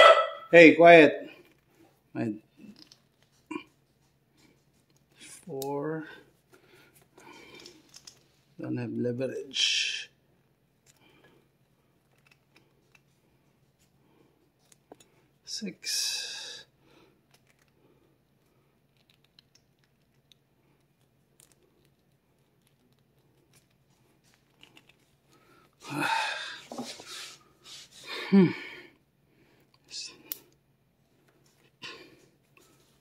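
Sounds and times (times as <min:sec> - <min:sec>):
loud breathy vocal sounds: 0:25.8 - 0:26.8.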